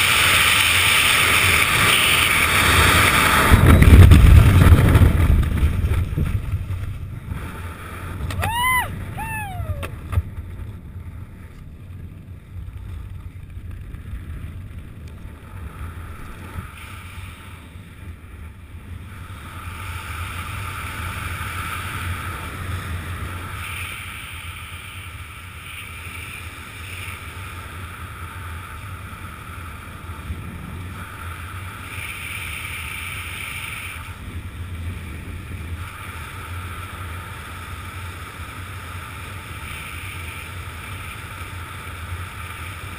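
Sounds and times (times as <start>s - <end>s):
wind noise on microphone: 1.2s - 25.0s.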